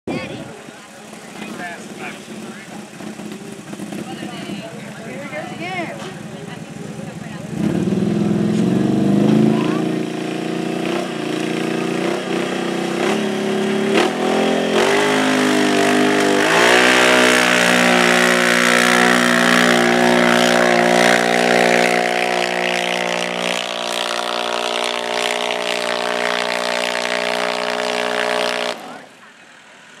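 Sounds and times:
quad bike engine revving: 0.1s - 30.0s.

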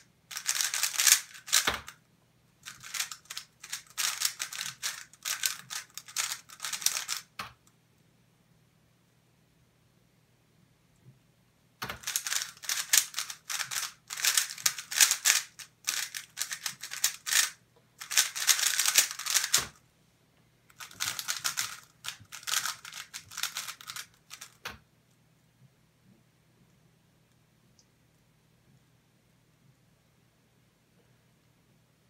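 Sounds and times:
plastic puzzle cube clacking: 0.3s - 2.0s, 2.6s - 7.4s, 11.8s - 19.8s, 20.7s - 24.8s.

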